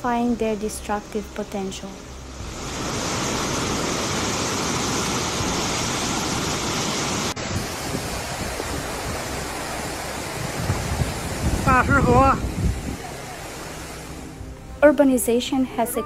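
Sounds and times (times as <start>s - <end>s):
floodwater rushing: 2.3s - 14.7s.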